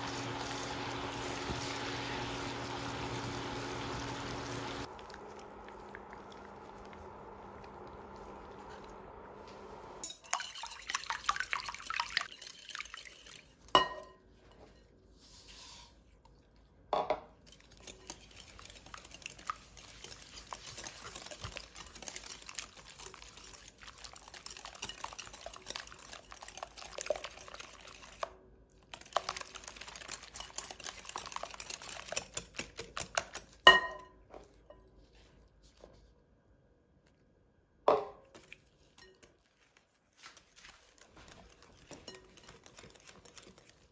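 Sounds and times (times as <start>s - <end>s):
whisk clicking against glass bowl: 17.8s - 28.3s, 28.9s - 33.6s, 41.2s - 43.9s
whisk knocking against bowl: 29.0s - 33.8s, 41.1s - 43.8s.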